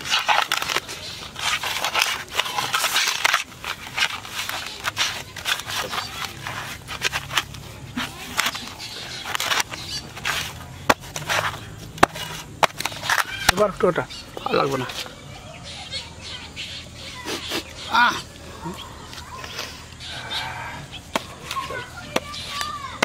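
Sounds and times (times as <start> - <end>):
dough squishing on metal plate: 0.0 - 13.8.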